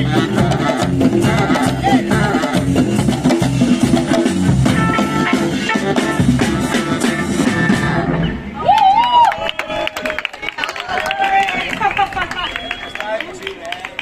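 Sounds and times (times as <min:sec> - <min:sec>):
drum kit beat: 0:00.0 - 0:08.1
saxophone: 0:00.0 - 0:08.3
double bass: 0:00.0 - 0:08.6.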